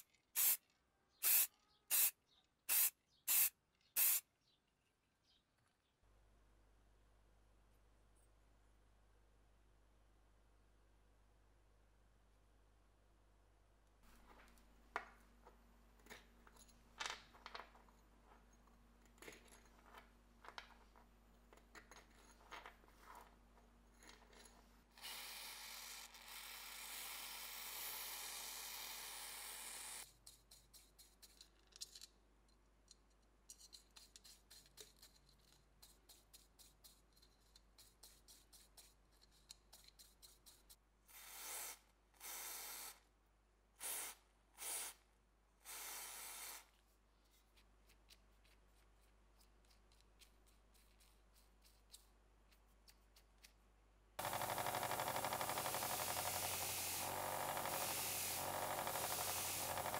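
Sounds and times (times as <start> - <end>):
steady hiss: 54.2 - 59.9.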